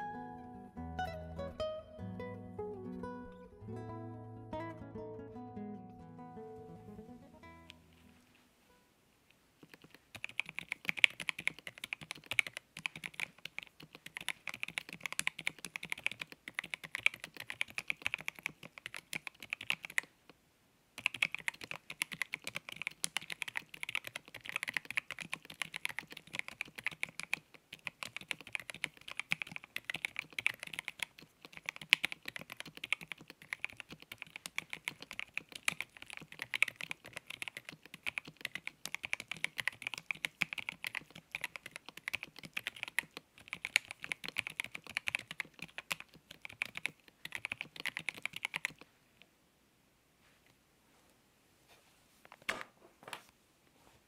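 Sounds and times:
typing on mechanical keyboard: 9.6 - 20.1, 21.0 - 48.9.

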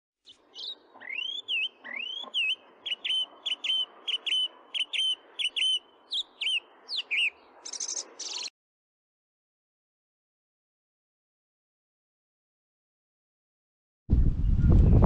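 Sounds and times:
bird singing whistled notes: 0.3 - 8.5.

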